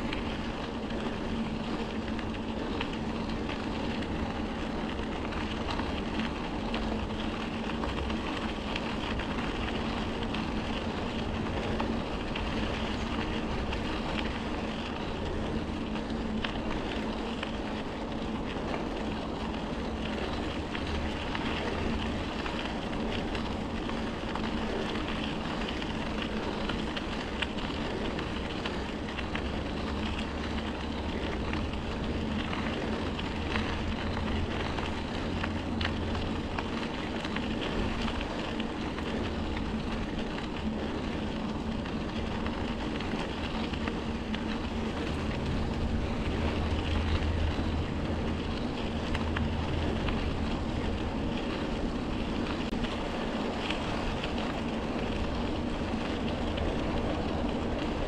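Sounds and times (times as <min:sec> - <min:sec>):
constant low hum: 0:00.0 - 0:58.0
wind rushing over microphone: 0:25.8 - 0:58.0.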